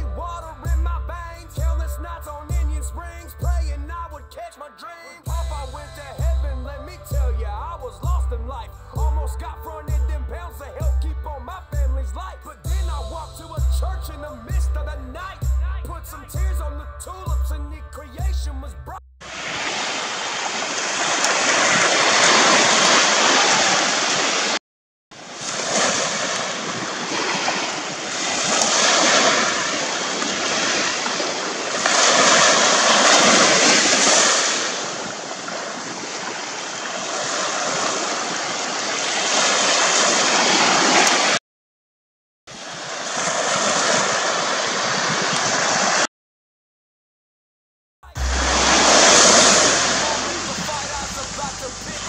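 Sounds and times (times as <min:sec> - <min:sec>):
sea surf and wind hissing: 0:19.2 - 0:24.6, 0:25.2 - 0:41.4, 0:42.5 - 0:46.1, 0:48.2 - 0:52.0.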